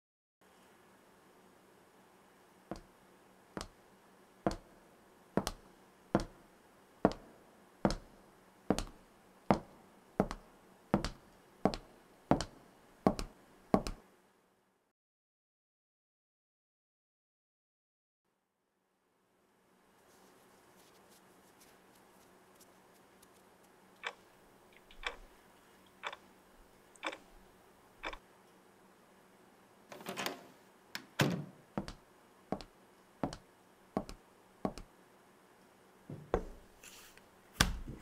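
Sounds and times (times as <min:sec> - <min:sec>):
knocks like footsteps: 0:04.5 - 0:04.7, 0:05.4 - 0:05.6, 0:06.2 - 0:06.4, 0:07.1 - 0:07.3, 0:07.9 - 0:08.1, 0:08.7 - 0:10.4, 0:11.0 - 0:14.0, 0:31.8 - 0:33.4, 0:34.0 - 0:34.9
wall clock ticking: 0:24.0 - 0:24.2, 0:25.0 - 0:25.3, 0:27.0 - 0:27.2.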